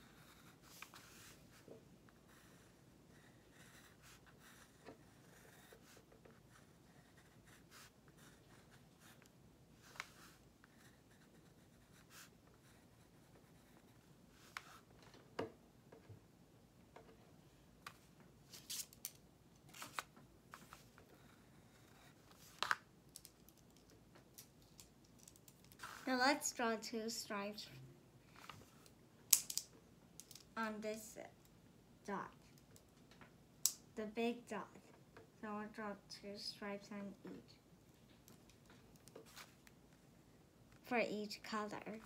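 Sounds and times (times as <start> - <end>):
pencil scratching on paper: 0.0 - 1.6, 2.2 - 14.9, 20.6 - 22.5.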